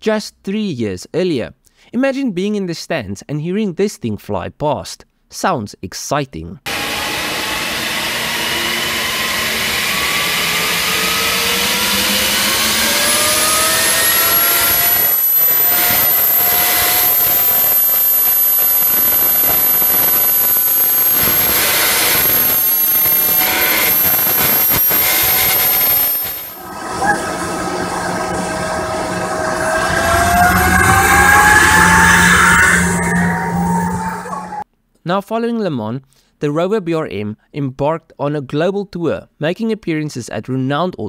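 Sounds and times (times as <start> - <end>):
loud rushing hiss: 6.7 - 32.2
gas turbine whine: 6.7 - 34.6.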